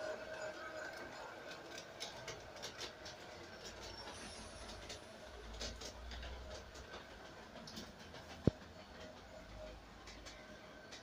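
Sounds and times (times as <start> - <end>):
wheels clicking over rail joints: 0.0 - 11.0.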